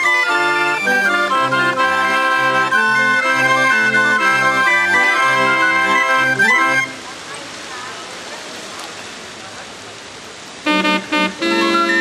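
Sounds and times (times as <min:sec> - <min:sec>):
barrel organ playing a tune: 0:00.0 - 0:06.9, 0:10.7 - 0:12.0.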